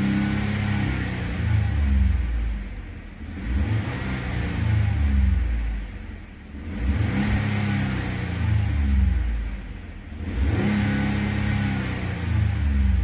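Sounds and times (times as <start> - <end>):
truck engine revving: 3.3 - 5.4, 6.6 - 9.3, 10.1 - 13.0.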